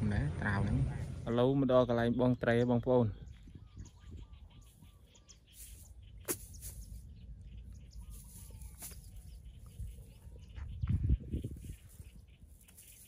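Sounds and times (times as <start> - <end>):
low rumble: 0.0 - 2.0
small bird chirps: 1.7 - 13.0
chickens clucking: 3.4 - 13.0.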